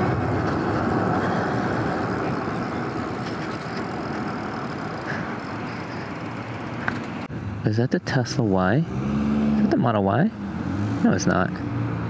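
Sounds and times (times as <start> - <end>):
tyres rolling on asphalt: 0.0 - 7.3.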